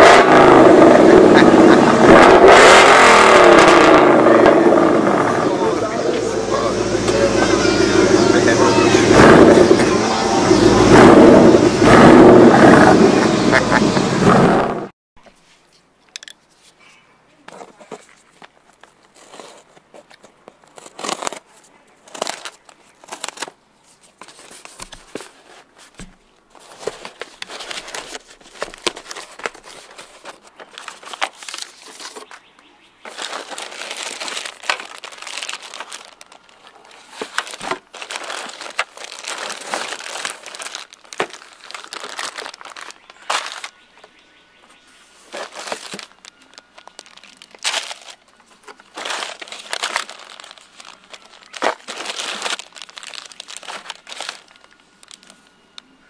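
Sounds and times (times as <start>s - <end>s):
plastic bags and paper rustling: 16.6s - 55.8s.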